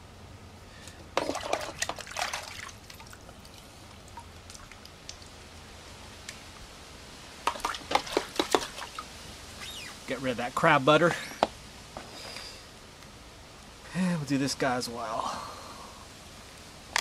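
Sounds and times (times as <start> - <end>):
water splashing and dripping: 1.2 - 5.5, 7.4 - 9.7.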